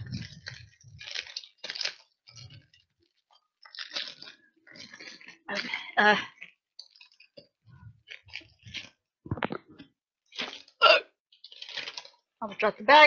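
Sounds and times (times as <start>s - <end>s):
wrapper crinkling: 0.0s - 9.6s, 10.3s - 13.0s
crispy cake crunching: 0.0s - 13.0s.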